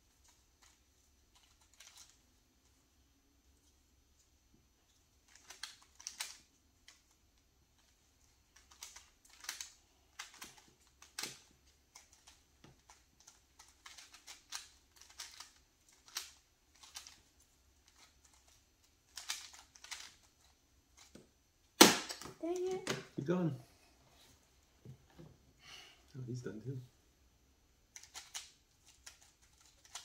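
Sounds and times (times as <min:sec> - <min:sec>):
puzzle cube clicking: 0:00.2 - 0:02.2, 0:05.2 - 0:07.2, 0:07.8 - 0:21.2, 0:27.9 - 0:30.0.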